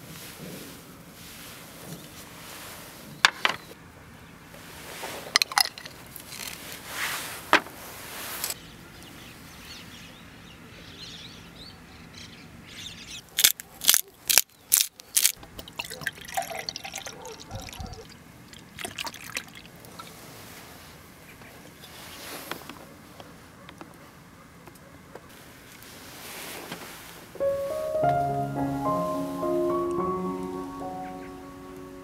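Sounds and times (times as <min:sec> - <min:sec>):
liquid pouring and dripping: 0:15.4 - 0:20.1
beer pouring into a glass: 0:15.6 - 0:18.0.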